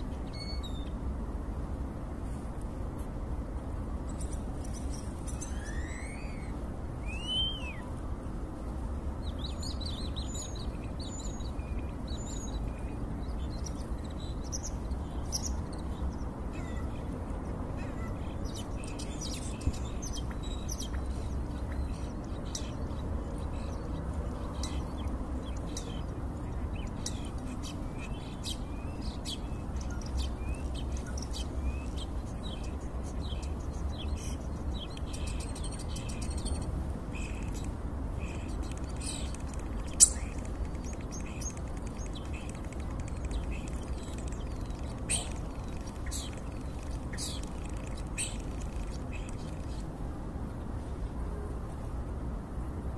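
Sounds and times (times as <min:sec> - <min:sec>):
starling singing: 0:38.6 - 0:49.6.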